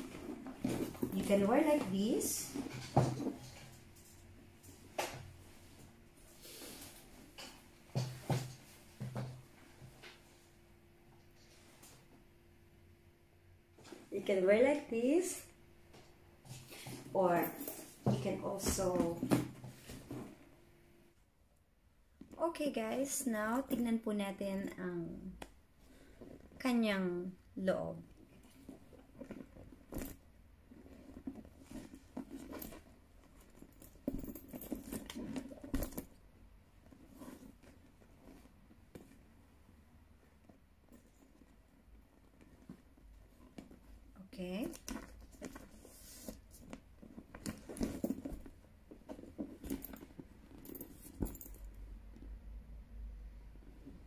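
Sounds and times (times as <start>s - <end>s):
bag rustling and knocking: 0.0s - 5.3s, 6.5s - 10.1s, 16.5s - 20.5s, 28.2s - 39.4s, 40.4s - 52.4s
canvas bag rustling: 42.2s - 51.6s.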